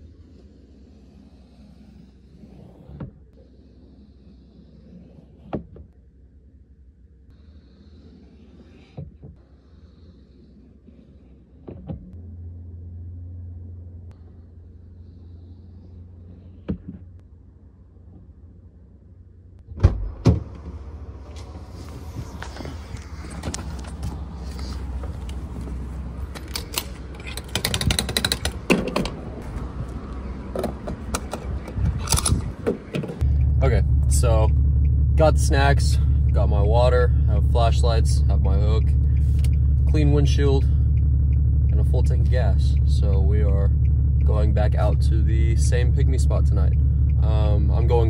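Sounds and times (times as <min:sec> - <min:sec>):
low steady hum: 0:00.0 - 0:48.0
fuel nozzle handling: 0:21.3 - 0:33.5.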